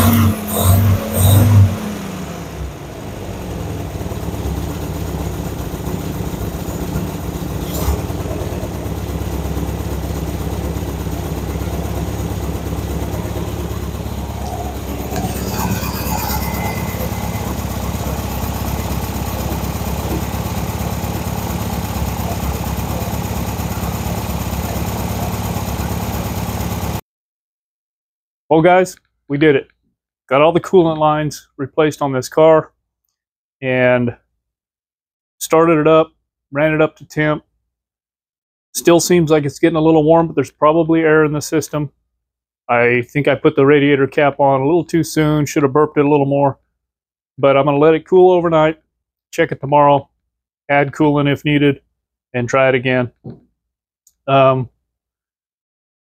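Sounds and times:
car engine revving and idling: 0:00.0 - 0:27.0.

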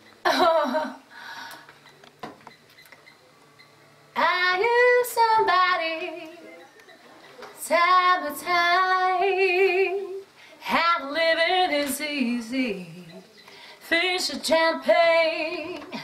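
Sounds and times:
woman singing unaccompanied: 0:04.1 - 0:06.7, 0:07.6 - 0:16.0.

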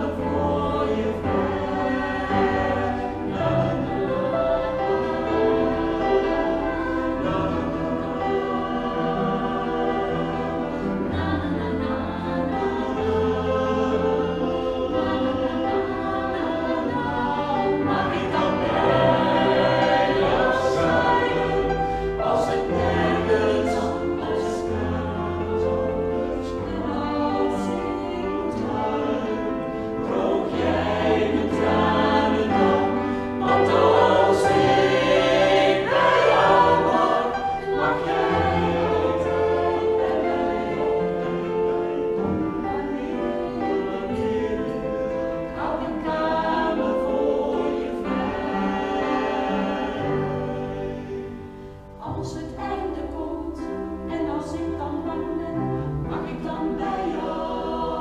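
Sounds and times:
mixed vocal group singing in harmony: 0:00.0 - 0:58.0.

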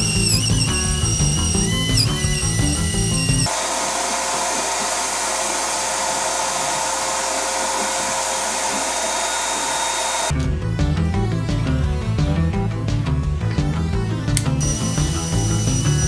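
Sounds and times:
background music: 0:00.0 - 0:03.5, 0:10.3 - 0:16.0
shop vacuum sucking up wood chips: 0:00.0 - 0:10.3.

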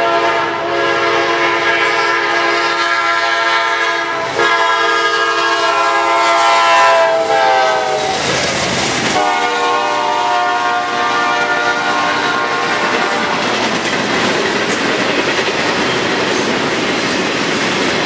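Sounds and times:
locomotive air horn chord: 0:00.0 - 0:08.2, 0:09.2 - 0:13.5.

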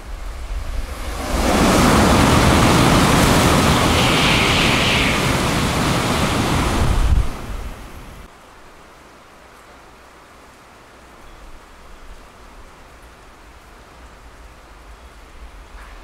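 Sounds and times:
high-speed train rushing past: 0:00.0 - 0:08.3
steady rain hiss: 0:00.0 - 0:16.0.

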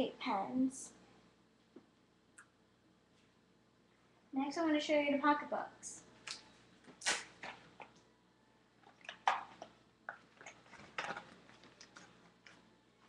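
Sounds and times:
objects being handled: 0:08.8 - 0:12.7.

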